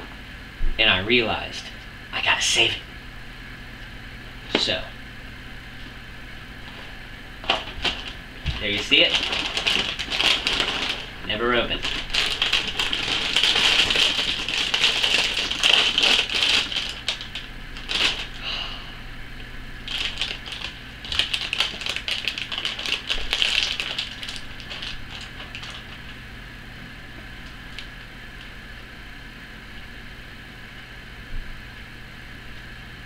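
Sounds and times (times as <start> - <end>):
cereal rattling: 7.4 - 18.4, 19.8 - 26.2
plastic bag crinkling: 7.4 - 18.4, 19.8 - 26.3.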